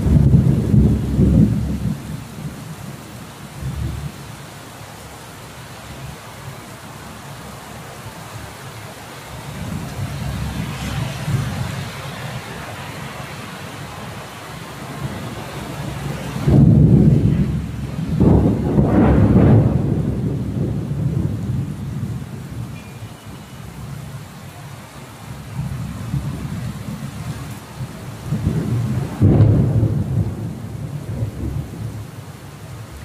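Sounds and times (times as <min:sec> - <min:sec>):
loud thunderclap: 0:00.0 - 0:02.5, 0:15.0 - 0:22.7, 0:27.8 - 0:32.1
thunder rumbling: 0:00.0 - 0:04.2, 0:09.3 - 0:22.9, 0:25.3 - 0:33.0
heavy rain: 0:00.0 - 0:33.0.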